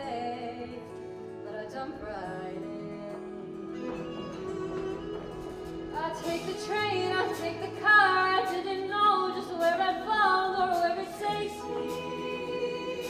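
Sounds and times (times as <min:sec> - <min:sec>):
musical accompaniment: 0:00.0 - 0:13.0
choir singing: 0:03.7 - 0:13.0.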